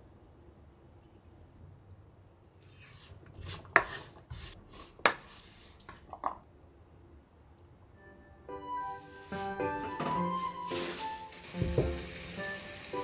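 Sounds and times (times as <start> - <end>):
wooden spoon scraping metal bowl: 2.7 - 5.6.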